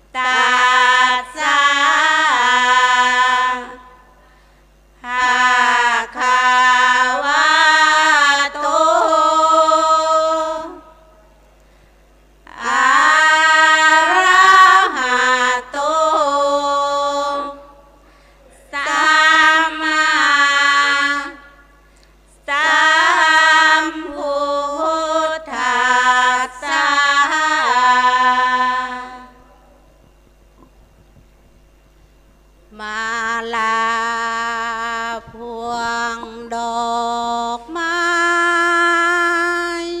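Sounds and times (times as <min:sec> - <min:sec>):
woman chanting into a microphone: 0:00.1 - 0:04.1, 0:18.6 - 0:21.6, 0:32.7 - 0:40.0.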